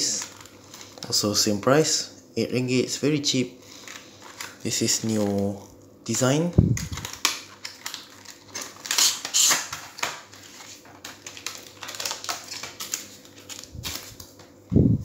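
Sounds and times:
plastic packaging crinkling: 0.0 - 1.5, 3.6 - 5.7, 6.6 - 14.6.

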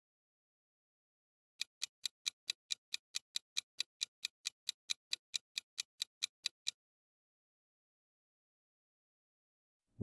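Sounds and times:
rapid clock ticking: 1.6 - 6.8.

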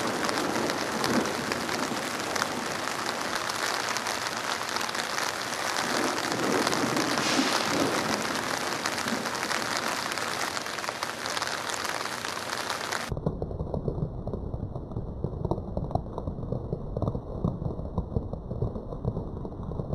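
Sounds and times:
heavy rain falling: 0.0 - 19.9.

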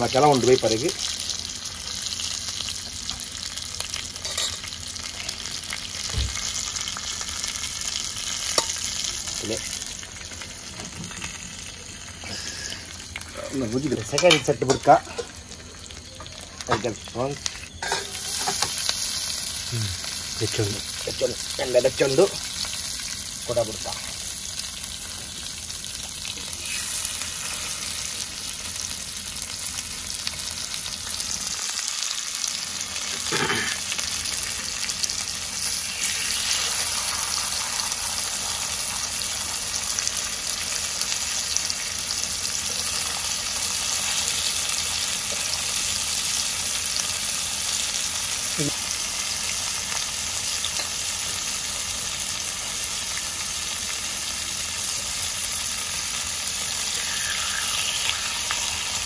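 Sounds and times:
prawns sizzling in hot oil: 0.0 - 59.0.

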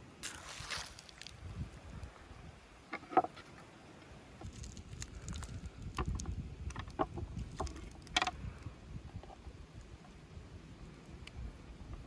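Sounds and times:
low steady rumble: 0.0 - 12.0
wooden skewers clicking and knocking: 4.4 - 8.4.

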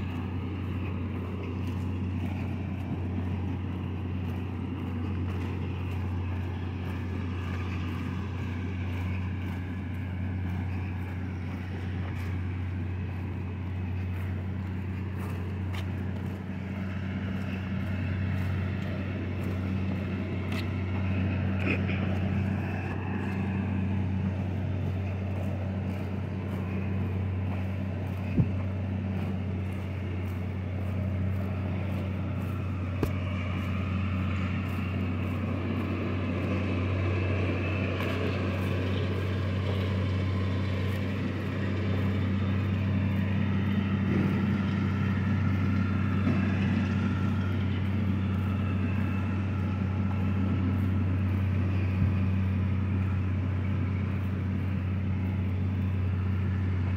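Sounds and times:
tractor engine droning: 0.0 - 56.9.

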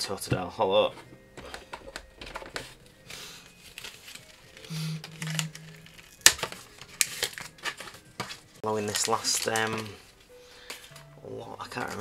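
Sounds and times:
plastic wrappers crinkling: 5.8 - 11.0.

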